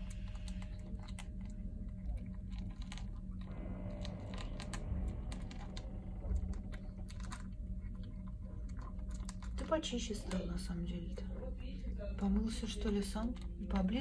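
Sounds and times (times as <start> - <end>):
kitten crunching dry food: 0.0 - 10.7
steady low hum: 0.0 - 14.0.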